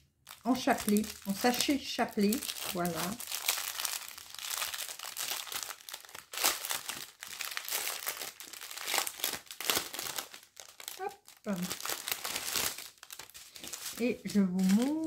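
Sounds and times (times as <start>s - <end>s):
plastic packaging crinkling: 0.2s - 15.0s.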